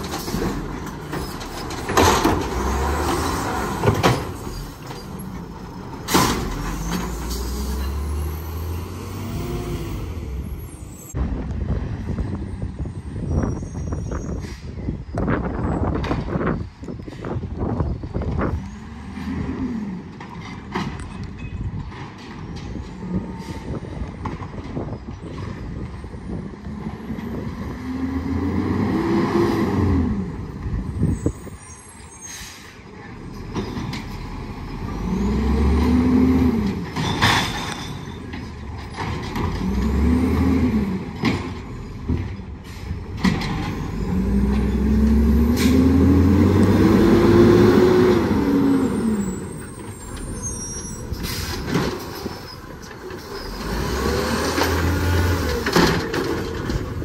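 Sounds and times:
diesel engine revving: 0:00.0 - 0:12.1, 0:18.4 - 0:20.5, 0:26.4 - 0:31.6, 0:32.8 - 0:37.7, 0:38.3 - 0:57.0.

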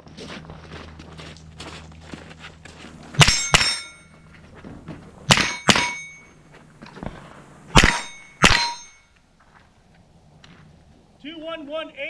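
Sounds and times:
rifle gunshots: 0:03.2 - 0:03.9, 0:05.3 - 0:06.2, 0:07.7 - 0:08.9
metallic ringing of steel plates: 0:03.2 - 0:04.3, 0:05.3 - 0:06.4, 0:07.7 - 0:09.2.

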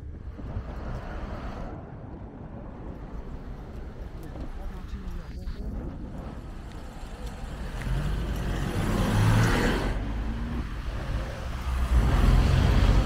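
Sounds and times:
cars driving past: 0:06.2 - 0:13.0.

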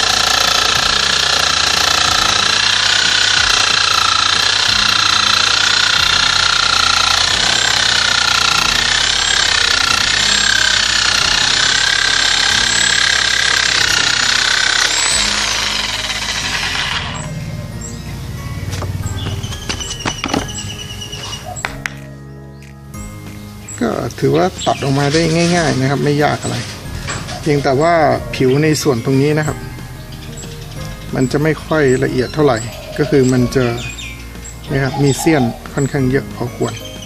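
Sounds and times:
reciprocating saw cutting bamboo: 0:00.0 - 0:17.9, 0:24.2 - 0:37.0.

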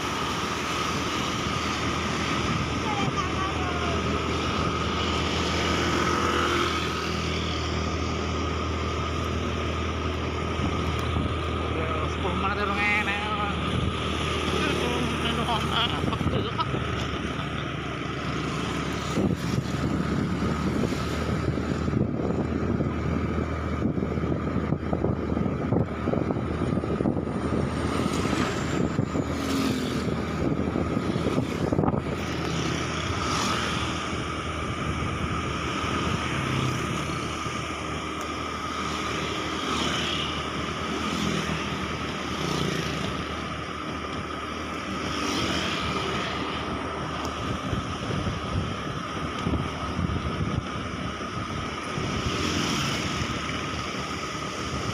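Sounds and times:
road noise: 0:00.0 - 0:54.9
thin steady whine: 0:00.0 - 0:54.9
wind buffeting microphone: 0:19.0 - 0:33.2, 0:46.7 - 0:54.9.

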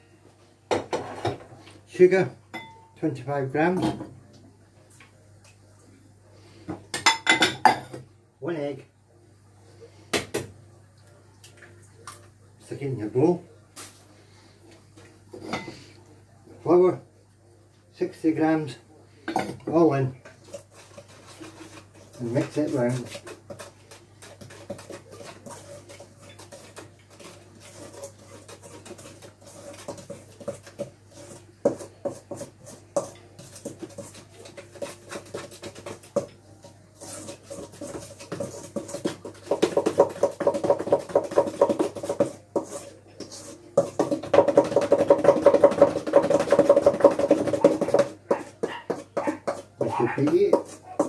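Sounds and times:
spoon beating batter in metal bowl: 0:19.3 - 0:51.0.

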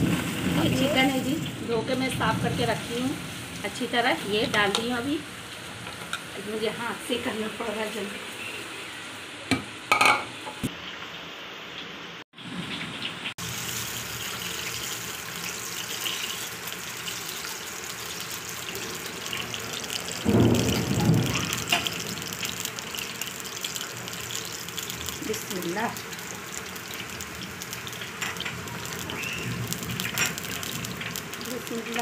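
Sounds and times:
fat hissing in a pan: 0:13.4 - 0:32.0.

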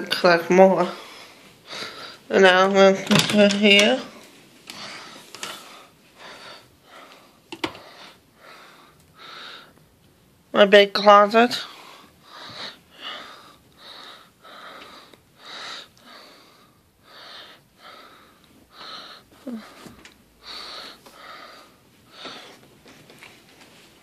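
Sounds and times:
person breathing: 0:00.9 - 0:02.3, 0:04.7 - 0:09.8, 0:11.6 - 0:22.7.

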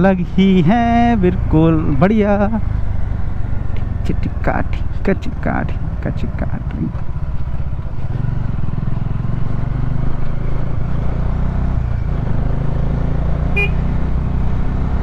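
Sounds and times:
motorcycle engine running: 0:00.0 - 0:15.0
short horn beep: 0:13.5 - 0:13.9.

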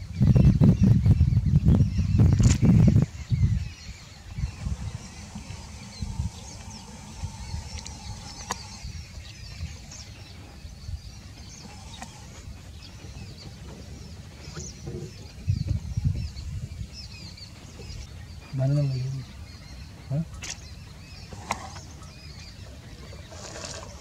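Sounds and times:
small birds chirping: 0:00.0 - 0:24.0
steady low rumble: 0:00.2 - 0:18.4
low bumps: 0:00.6 - 0:18.5.

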